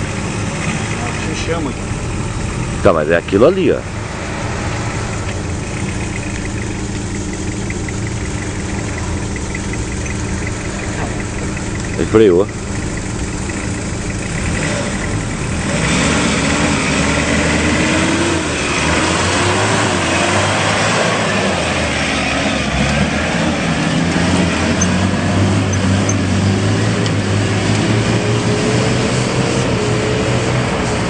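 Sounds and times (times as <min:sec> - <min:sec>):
truck engine revving: 0:00.0 - 0:31.0
tyres churning through mud: 0:00.0 - 0:31.0.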